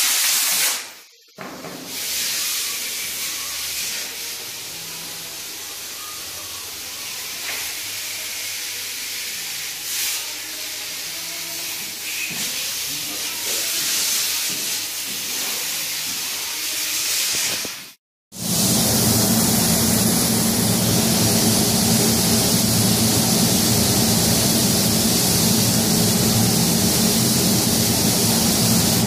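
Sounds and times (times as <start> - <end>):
paint spray gun hissing: 17.6 - 29.0.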